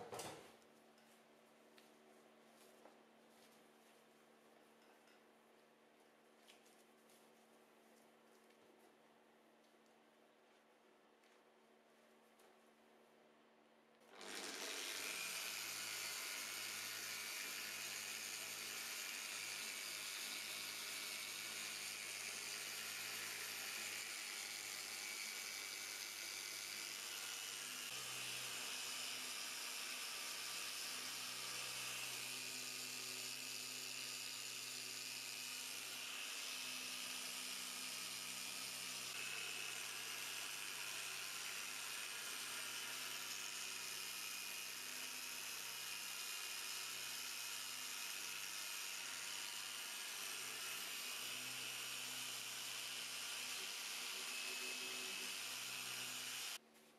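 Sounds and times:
electric sander whirring: 0:14.1 - 0:56.6.

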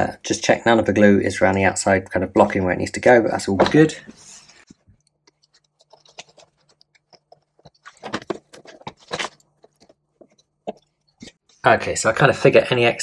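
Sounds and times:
hands handling plastic: 0:03.6 - 0:11.3.

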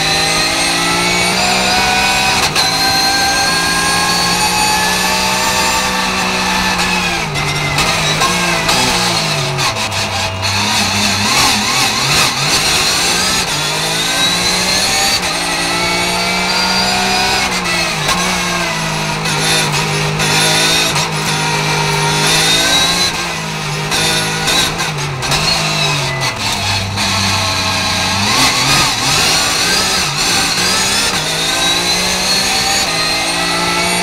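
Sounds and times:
racing engine revving: 0:00.0 - 0:34.0.

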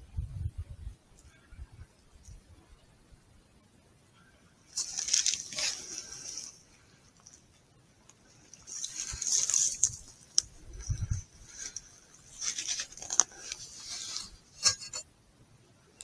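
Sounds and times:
rustling and scratching: 0:04.7 - 0:15.1.

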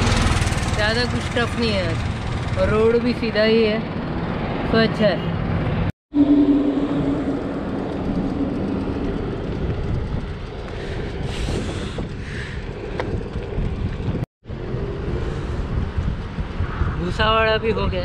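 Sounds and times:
road and traffic noise: 0:00.0 - 0:18.0
wind rushing over microphone: 0:03.8 - 0:18.0.

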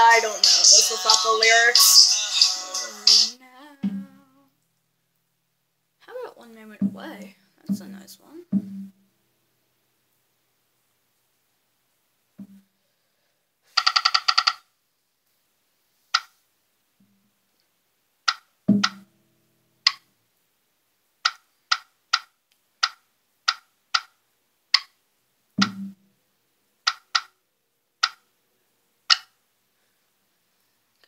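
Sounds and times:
dull thumps with low ring: 0:03.8 - 0:04.2, 0:08.6 - 0:09.0, 0:18.7 - 0:19.0, 0:25.6 - 0:26.0
computer keys and mouse clicking: 0:13.8 - 0:14.6, 0:21.2 - 0:24.2, 0:26.9 - 0:27.4, 0:28.0 - 0:28.2.

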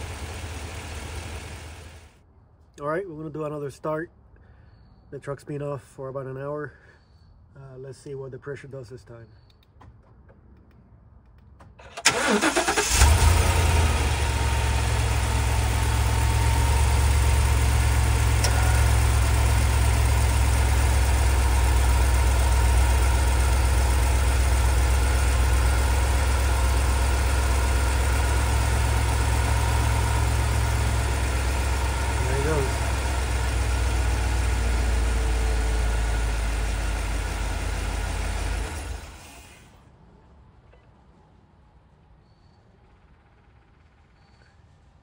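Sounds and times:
car engine idling: 0:00.0 - 0:02.2, 0:11.8 - 0:39.5
starter motor cranking: 0:11.8 - 0:13.9.

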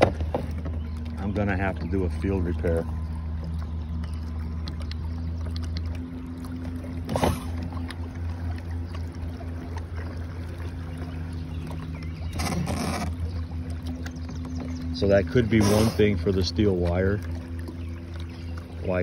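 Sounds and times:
electric boat motor humming: 0:00.0 - 0:19.0.

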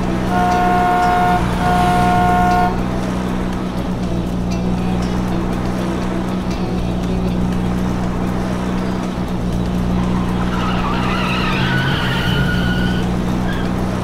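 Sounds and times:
wavering tyre squeal: 0:00.0 - 0:03.4, 0:08.5 - 0:14.0
cartoon car engine running: 0:00.0 - 0:14.0.

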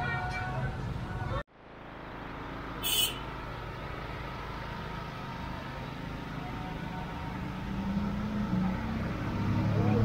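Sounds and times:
street traffic rumble: 0:00.0 - 0:10.0.

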